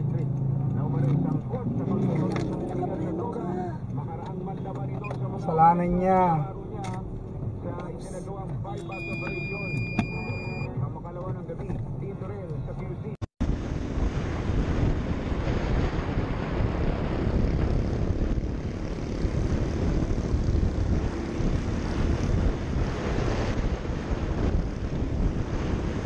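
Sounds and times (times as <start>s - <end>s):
motorcycle engine running: 13.4s - 26.0s
wind buffeting microphone: 13.4s - 26.0s.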